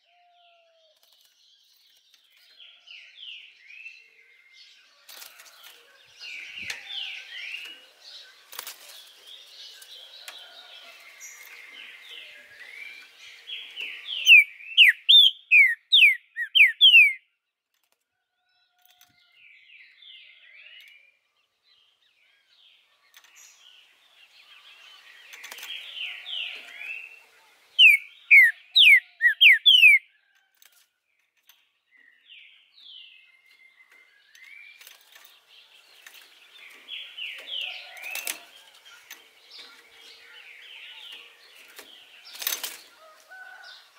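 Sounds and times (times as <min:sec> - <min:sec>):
bird twittering: 0:14.2 - 0:17.2, 0:27.8 - 0:30.0
bird whistling song: 0:14.2 - 0:17.2, 0:27.8 - 0:30.1.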